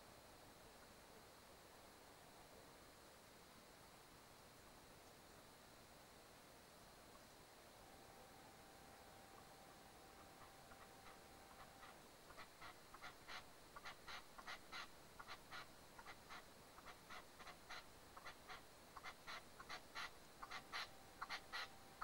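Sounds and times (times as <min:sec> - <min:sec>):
partridge calling: 0:08.1 - 0:22.0.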